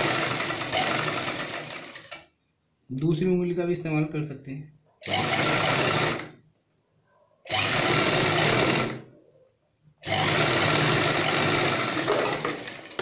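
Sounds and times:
sewing machine running: 0.0s - 2.2s, 5.0s - 6.4s, 7.5s - 9.0s, 10.0s - 13.0s.

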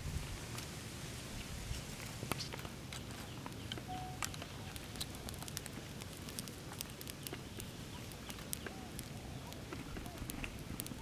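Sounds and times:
small fire crackling: 0.0s - 11.0s
sharp snaps of twigs: 2.3s - 11.0s.

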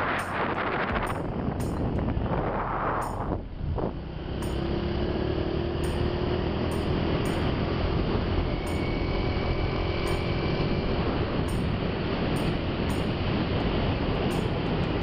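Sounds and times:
road and wind noise: 0.0s - 15.0s
vehicle engine drone: 0.0s - 15.0s
faint high whine: 5.9s - 15.0s.

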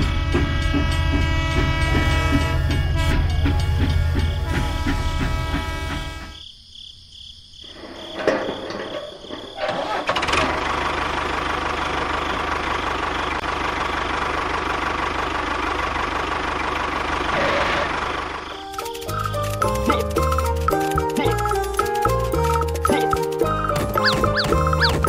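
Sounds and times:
tractor engine starting and running: 8.2s - 25.0s.

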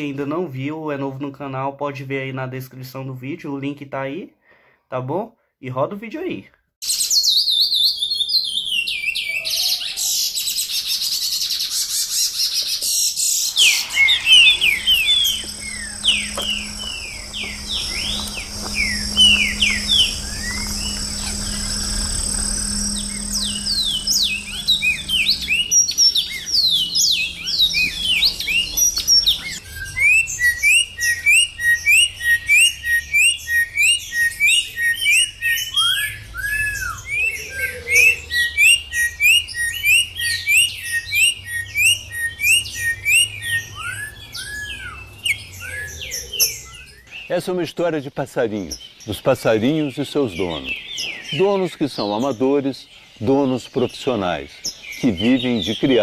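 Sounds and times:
whistled bird notes: 6.8s - 47.4s
songbirds twittering: 6.8s - 56.0s
low hum: 13.4s - 29.7s.

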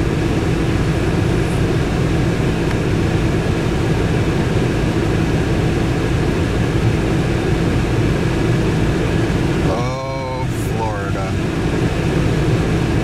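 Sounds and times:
air-conditioning fan blowing: 0.0s - 13.0s
car engine running: 0.0s - 13.0s.

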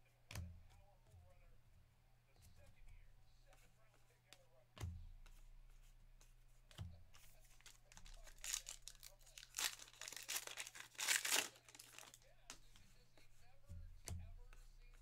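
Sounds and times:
plastic wrapper tearing: 7.6s - 12.2s.

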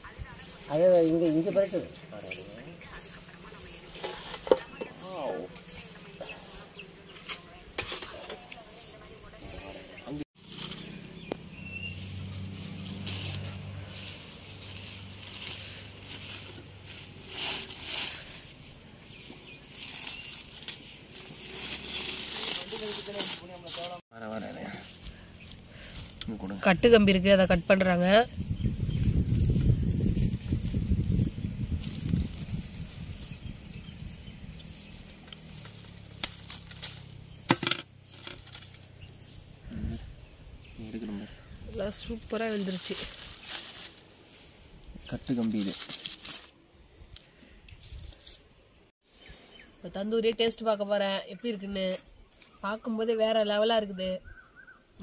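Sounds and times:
aluminium foil crinkling: 12.4s - 18.6s, 19.2s - 26.3s, 35.0s - 37.5s, 38.1s - 38.9s, 41.9s - 44.2s, 45.0s - 46.6s, 47.8s - 48.5s.

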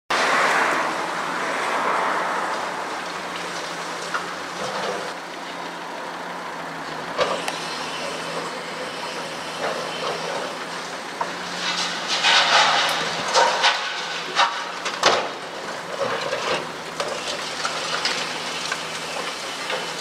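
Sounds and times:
excavator running: 0.1s - 20.0s
hydraulic crusher crunching concrete: 7.1s - 20.0s.

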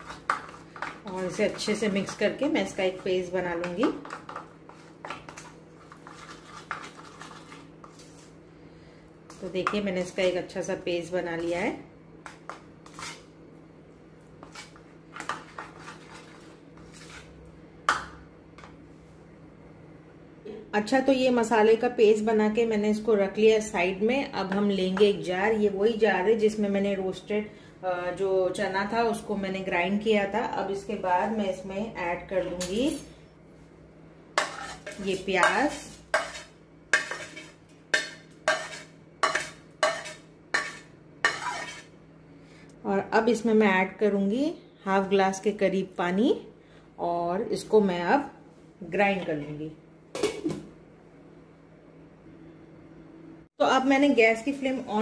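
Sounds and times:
spoon stirring thick paste: 0.0s - 8.4s, 14.4s - 17.4s, 34.4s - 41.9s.

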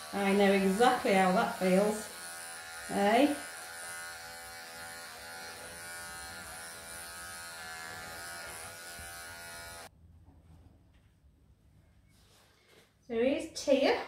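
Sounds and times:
electric hair clippers buzzing: 0.0s - 9.9s.

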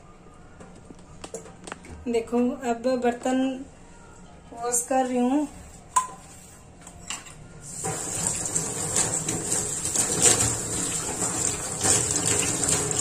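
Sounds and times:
dishes clinking: 5.9s - 7.5s
water running into sink: 7.7s - 13.0s.

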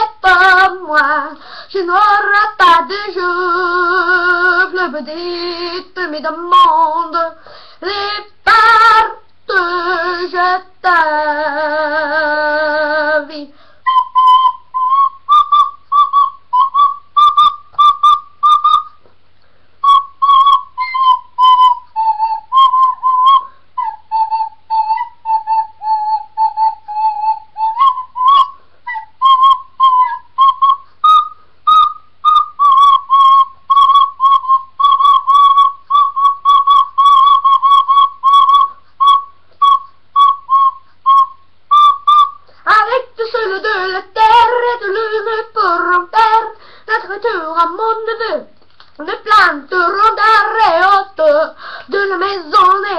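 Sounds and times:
recorder melody: 13.9s - 19.1s, 19.8s - 43.1s
person singing: 42.6s - 52.9s.

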